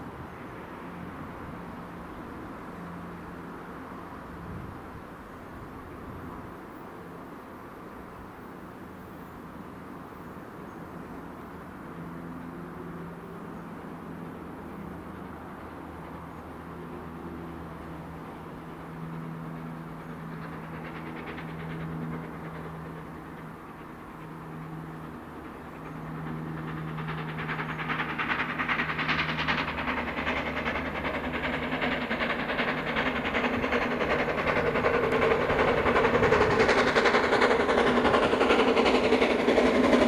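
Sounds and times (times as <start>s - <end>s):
steam locomotive approaching: 0.0s - 40.0s.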